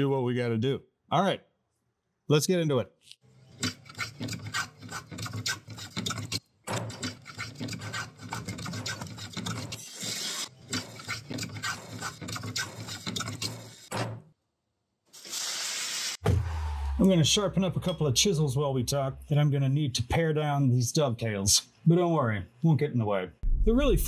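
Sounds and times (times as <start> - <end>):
plane strokes on wood: 3.6 - 9.8, 10.7 - 13.8
scraping on wood: 3.6 - 9.8
hand saw on wood: 3.6 - 13.9.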